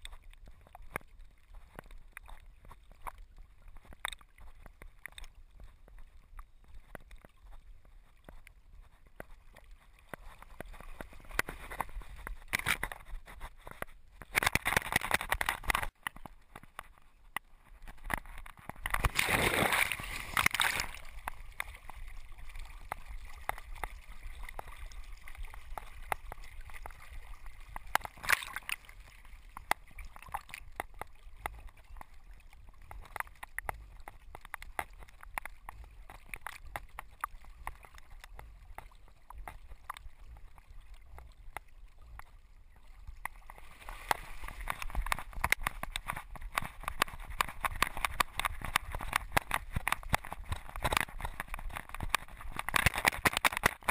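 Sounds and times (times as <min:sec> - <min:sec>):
water sloshing and gurgling: 0:00.0 - 0:53.9
dog splashing into water: 0:19.0 - 0:21.0.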